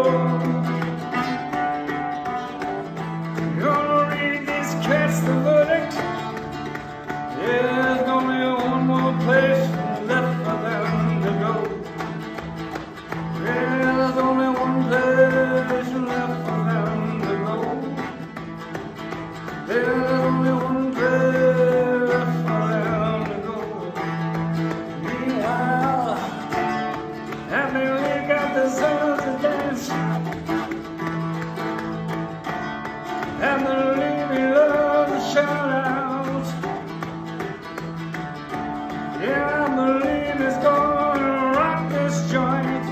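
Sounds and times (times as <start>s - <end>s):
person singing: 0.0s - 18.5s, 19.4s - 37.9s, 38.8s - 42.9s
guitar: 0.0s - 42.9s.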